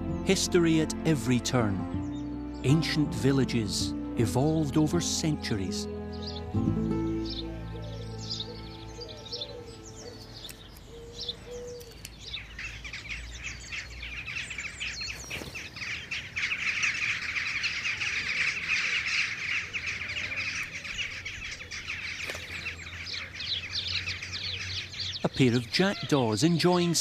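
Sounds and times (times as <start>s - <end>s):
soft music: 0.0s - 10.9s
birds chirping and calling: 0.0s - 27.0s.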